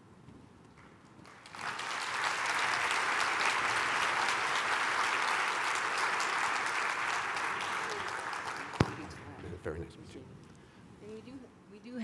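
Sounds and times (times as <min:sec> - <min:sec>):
audience applauding: 0:01.2 - 0:09.3.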